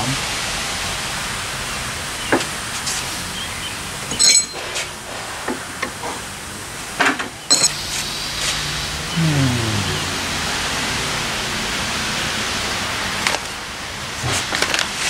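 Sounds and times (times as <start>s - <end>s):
metal cups clinking together: 7.5s - 7.7s.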